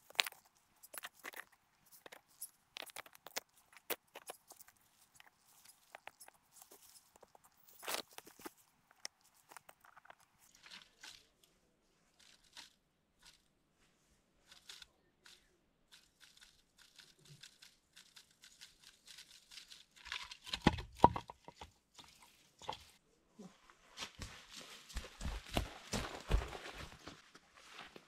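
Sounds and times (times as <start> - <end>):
crunches and knocks: 0.0 - 11.2, 20.0 - 23.0
dry brush crackling and rustling: 24.1 - 28.0.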